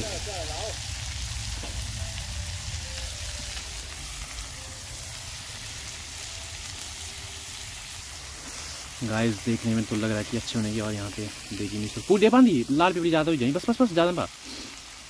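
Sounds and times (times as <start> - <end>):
vegetables sizzling in hot oil: 0.0 - 15.0.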